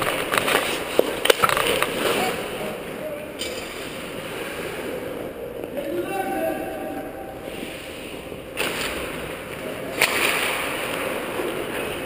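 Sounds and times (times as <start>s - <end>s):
skate blades scraping ice: 0.0s - 2.4s
hockey sticks and puck clacking: 0.0s - 2.5s, 3.4s - 4.1s, 8.6s - 12.0s.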